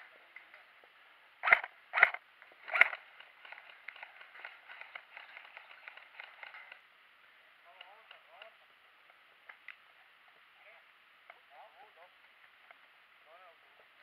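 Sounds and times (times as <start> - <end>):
quick patter of small clicks: 1.5 - 6.8.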